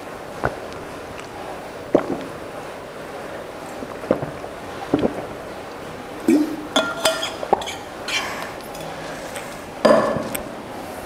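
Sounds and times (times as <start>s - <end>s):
bottle clinking: 6.3s - 7.8s.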